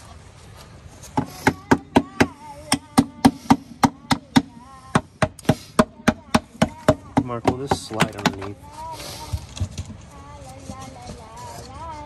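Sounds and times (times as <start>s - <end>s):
rapid hammering on wood: 1.2s - 8.5s.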